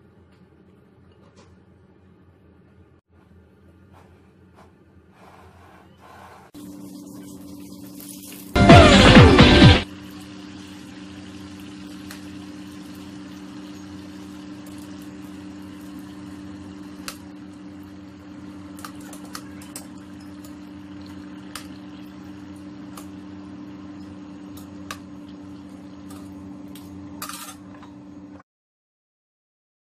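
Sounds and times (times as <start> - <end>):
food deep-frying in oil: 6.6 - 27.7
hot oil popping: 6.6 - 27.7
low hum: 6.6 - 28.4.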